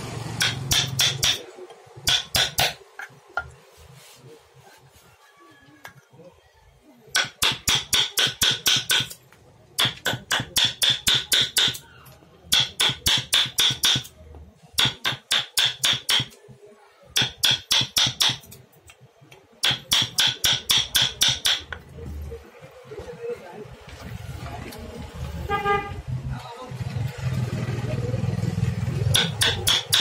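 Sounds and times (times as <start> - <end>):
hammer tapping chisel into wood: 0.4 - 1.4, 2.0 - 3.5, 7.2 - 9.2, 9.8 - 11.8, 12.5 - 14.1, 14.8 - 16.4, 17.2 - 18.6, 19.6 - 21.8, 29.1 - 30.0.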